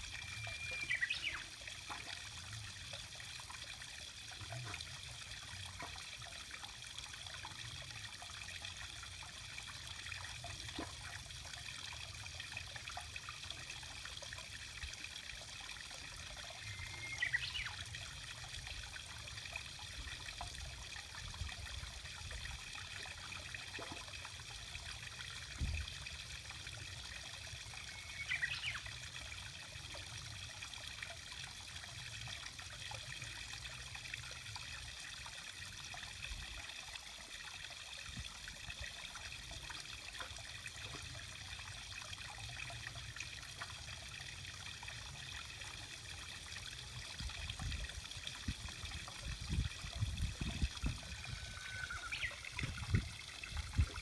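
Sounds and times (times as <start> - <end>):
water trickling in gutter: 0.0 - 54.0
bird song phrase: 0.3 - 1.4, 16.6 - 17.7, 27.9 - 28.8.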